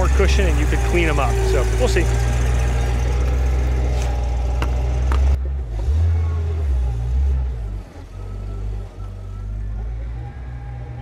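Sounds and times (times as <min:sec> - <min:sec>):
forklift engine running: 0:00.0 - 0:11.0
sharp clicks and knocks: 0:03.3 - 0:05.4.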